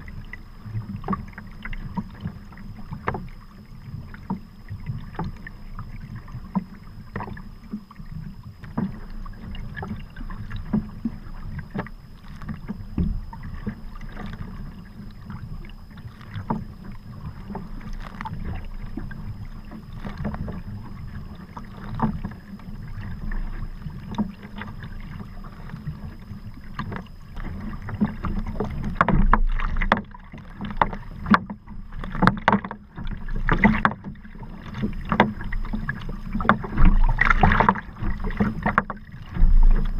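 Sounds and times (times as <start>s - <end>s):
low rumble of wind and water: 0.0s - 39.9s
paddle splashing: 0.0s - 39.9s
water slapping against hull: 0.0s - 39.9s.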